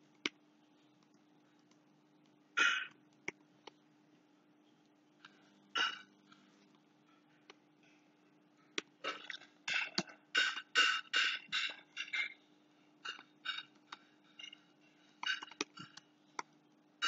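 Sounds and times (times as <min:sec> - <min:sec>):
faint electrical hum: 0:00.0 - 0:17.0
keyboard typing: 0:09.7 - 0:12.4, 0:13.0 - 0:16.5.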